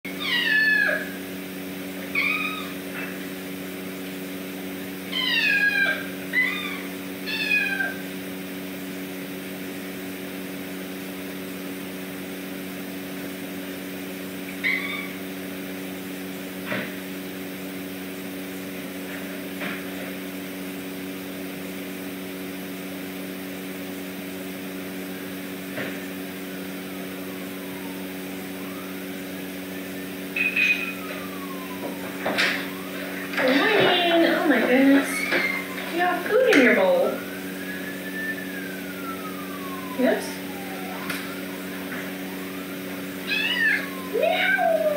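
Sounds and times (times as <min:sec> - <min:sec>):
steady low hum: 0:00.1 - 0:44.9
kitten meowing: 0:00.2 - 0:01.2, 0:02.1 - 0:02.8, 0:05.1 - 0:08.0, 0:14.6 - 0:15.2, 0:43.2 - 0:44.9.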